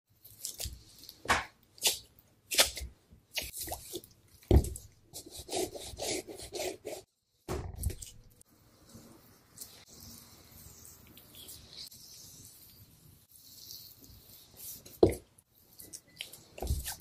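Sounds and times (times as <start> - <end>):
knife scraping fish skin: 5.1 - 7.1.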